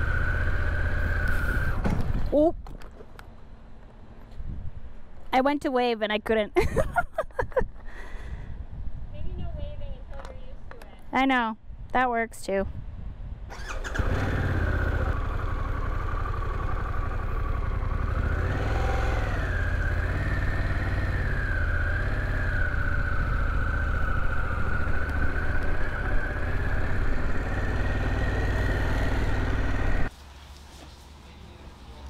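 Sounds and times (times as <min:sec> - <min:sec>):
motorcycle engine running: 0:13.6 - 0:30.1.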